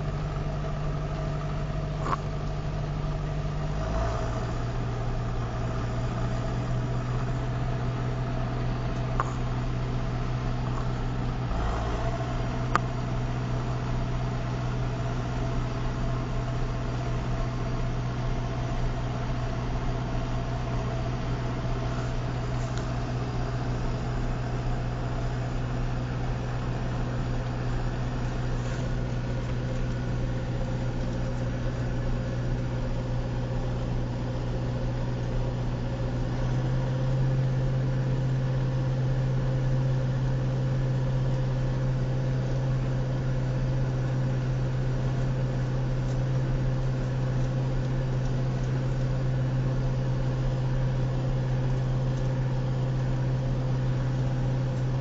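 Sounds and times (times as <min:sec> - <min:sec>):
tractor diesel engine drone: 0:00.0 - 0:55.0.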